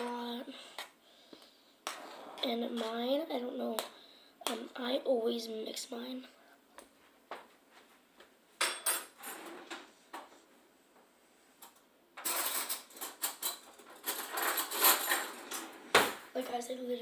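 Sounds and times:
kitchen items clattering: 12.2s - 16.4s.

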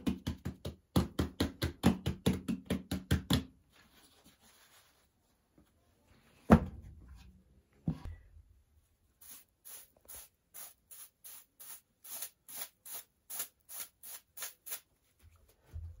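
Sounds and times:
brush swishing over dough: 3.8s - 5.5s.

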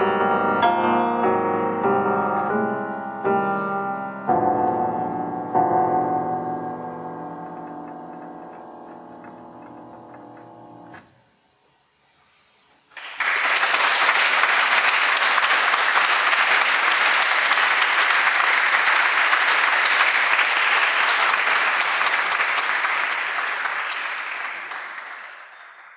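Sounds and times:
audience applauding: 12.9s - 25.9s.

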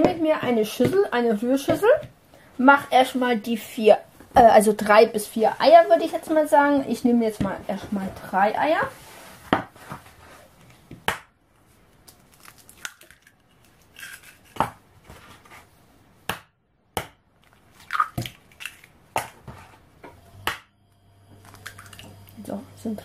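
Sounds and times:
eggshell cracking: 12.0s - 14.7s, 17.4s - 19.2s, 21.4s - 22.4s.

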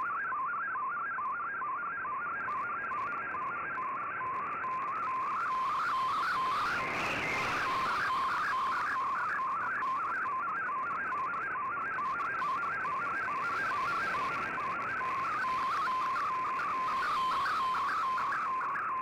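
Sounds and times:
radio hiss: 5.3s - 9.6s, 13.0s - 18.5s.

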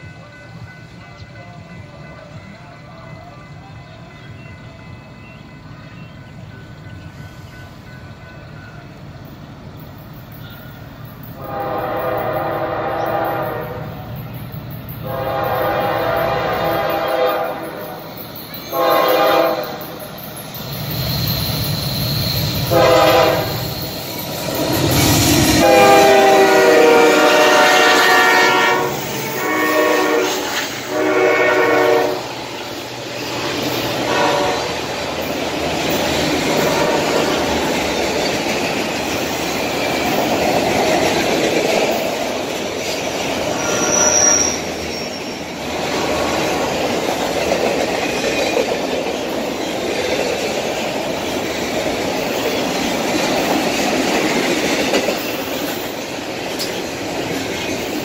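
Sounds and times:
rail cars clickety-clack: 0.0s - 58.0s
locomotive air horn blasts: 11.4s - 14.0s, 15.0s - 18.0s, 18.7s - 20.0s, 22.6s - 23.7s, 25.6s - 32.3s, 34.0s - 34.8s, 36.6s - 37.2s.

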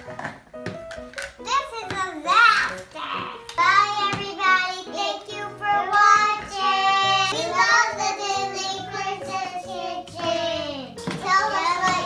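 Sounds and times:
instrumental backing music: 0.0s - 12.0s
child singing: 3.6s - 12.0s.

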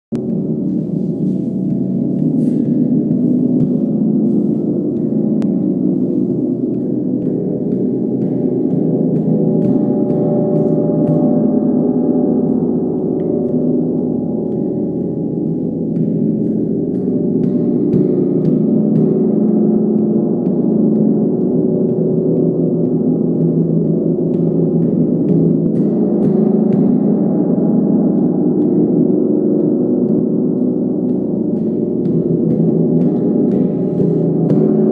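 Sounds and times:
gong sustained low tones: 0.1s - 34.9s
mallet tapping metal: 1.6s - 34.9s.

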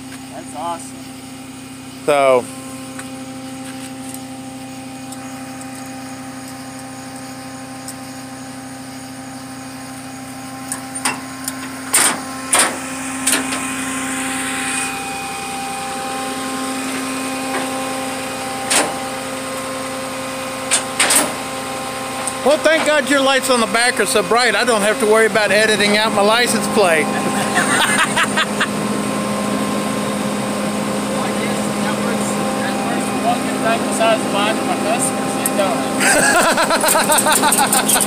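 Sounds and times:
truck engine idling: 0.0s - 38.0s
metal clanks and clicks: 10.7s - 13.6s, 20.7s - 21.4s, 36.9s - 38.0s.

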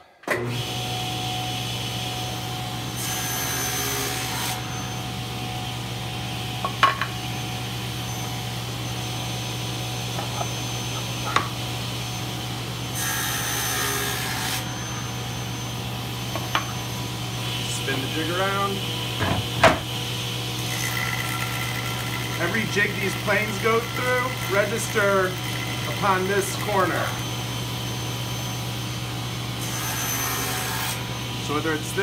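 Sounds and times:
table saw running: 0.3s - 32.0s
saw blade cutting wood: 10.1s - 11.6s, 20.7s - 27.1s.

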